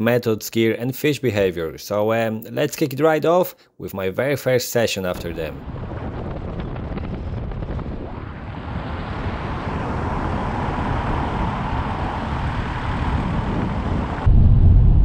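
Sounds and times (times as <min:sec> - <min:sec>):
wind on microphone: 0:05.2 - 0:15.0.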